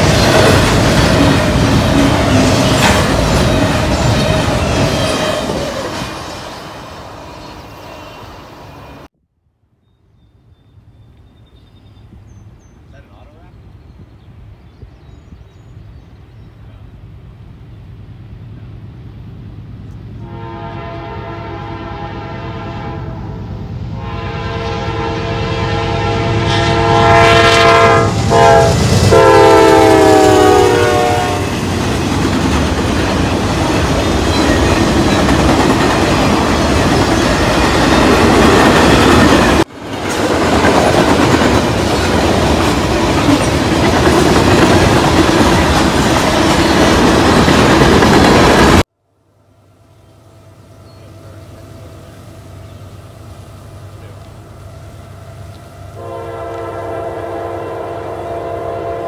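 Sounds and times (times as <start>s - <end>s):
diesel locomotive rumble: 0.0s - 9.1s, 15.4s - 59.0s
rail cars clattering past: 0.0s - 9.1s, 19.7s - 48.8s
train air horn blasts: 20.2s - 23.4s, 24.0s - 31.6s, 56.0s - 59.0s.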